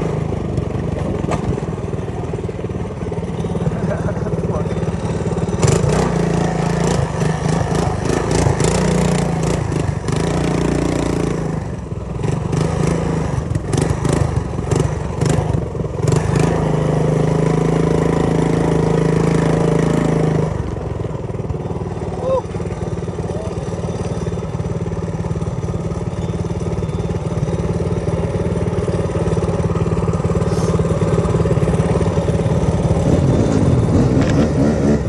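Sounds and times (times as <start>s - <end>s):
mini bike engine running: 0.0s - 35.0s
bike rattling over bumps: 0.4s - 11.2s.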